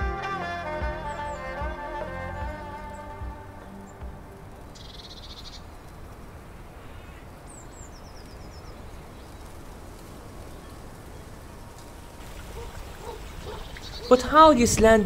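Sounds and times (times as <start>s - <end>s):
low background noise: 0.0s - 15.0s
small bird chirping: 4.7s - 5.8s, 12.2s - 14.3s.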